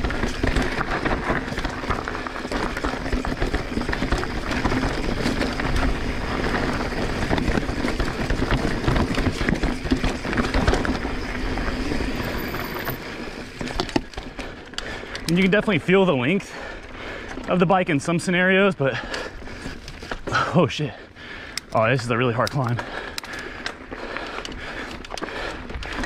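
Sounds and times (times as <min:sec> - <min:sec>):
tyres rolling over dirt: 0:00.0 - 0:16.5
bike rattling and knocking: 0:00.0 - 0:18.3, 0:18.9 - 0:26.0.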